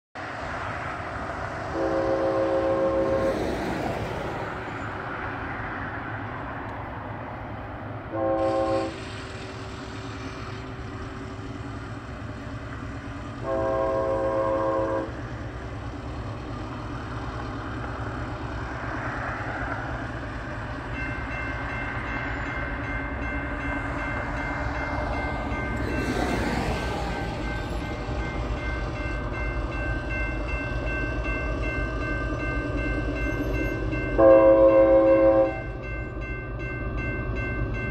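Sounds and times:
diesel locomotive rumble: 0:00.2 - 0:37.9
locomotive air horn blasts: 0:01.7 - 0:03.4, 0:08.1 - 0:09.1, 0:13.4 - 0:15.2, 0:34.2 - 0:35.7
crossing signal bell ringing: 0:20.6 - 0:37.9.

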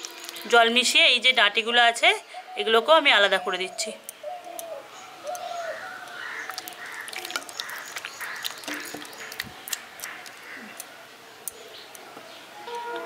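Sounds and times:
crows cawing: 0:05.2 - 0:09.4, 0:10.0 - 0:10.9
hands mashing wet pulp: 0:06.1 - 0:10.9.

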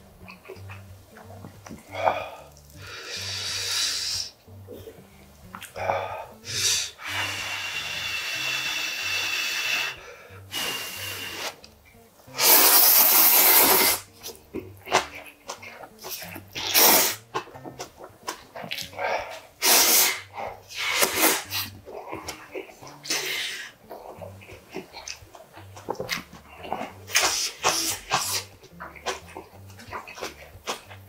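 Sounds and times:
small mouth sounds: 0:00.0 - 0:31.0
person slurping noodles: 0:01.9 - 0:04.3, 0:05.8 - 0:11.6, 0:12.3 - 0:15.1, 0:16.0 - 0:25.2, 0:25.8 - 0:30.9
breathy hiss: 0:01.9 - 0:11.7, 0:12.3 - 0:14.3, 0:14.9 - 0:17.3, 0:18.5 - 0:24.9, 0:26.4 - 0:28.6.

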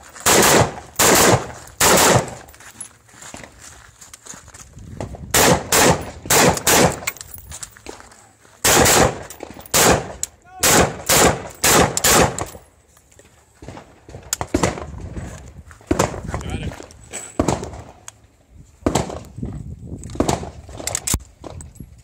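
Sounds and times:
rifle shots: 0:00.2 - 0:02.5, 0:05.3 - 0:07.2, 0:08.6 - 0:12.6, 0:13.6 - 0:14.9, 0:17.4 - 0:18.0, 0:18.8 - 0:19.2, 0:20.2 - 0:20.6.

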